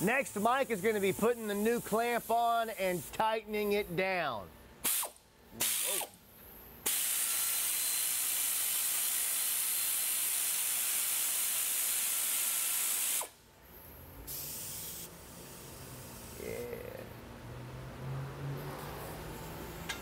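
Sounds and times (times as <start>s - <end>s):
pneumatic air ratchet running: 0.0s - 3.1s, 4.8s - 6.2s, 6.8s - 16.6s.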